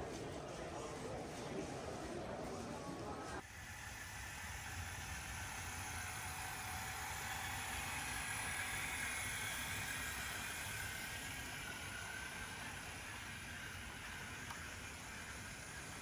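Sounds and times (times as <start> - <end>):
toy train whirring along track: 3.3 - 16.0.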